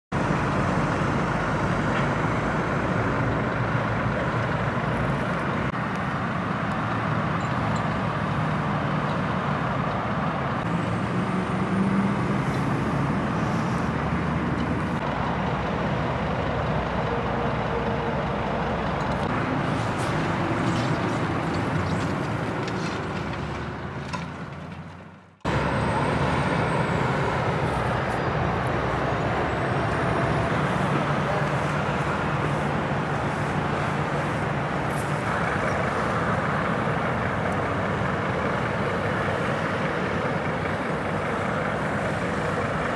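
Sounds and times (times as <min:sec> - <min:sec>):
motorway traffic passing: 0:00.1 - 0:42.9.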